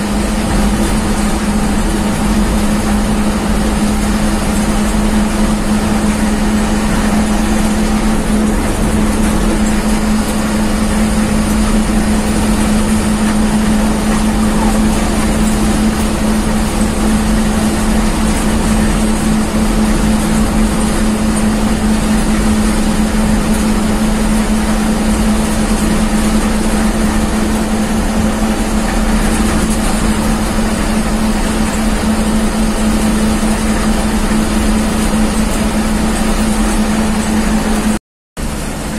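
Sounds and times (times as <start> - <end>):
bus engine droning: 0.0 - 38.9
road and wind noise: 0.0 - 38.9.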